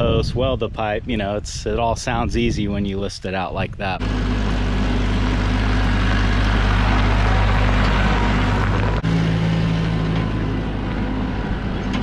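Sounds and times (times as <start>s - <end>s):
tractor diesel engine running: 4.0s - 12.0s.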